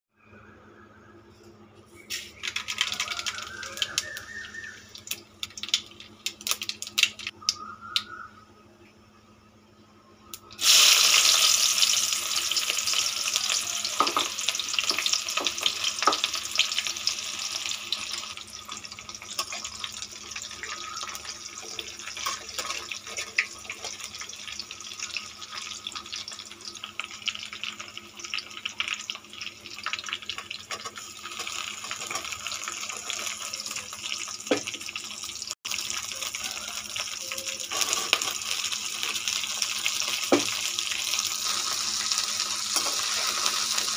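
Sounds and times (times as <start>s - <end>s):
onions sizzling in oil: 10.5s - 43.9s.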